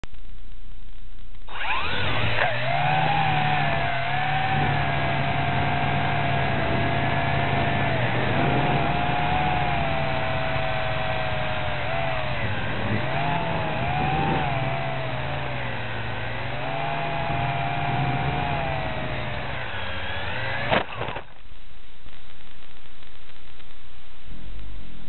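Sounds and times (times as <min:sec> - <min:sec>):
toy quadcopter motors whining: 0:01.5 - 0:21.1.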